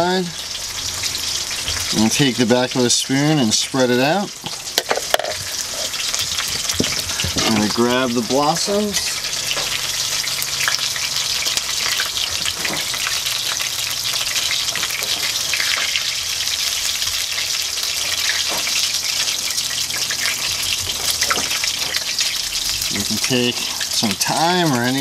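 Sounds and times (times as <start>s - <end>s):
oil sizzling in a frying pan: 0.0s - 25.0s.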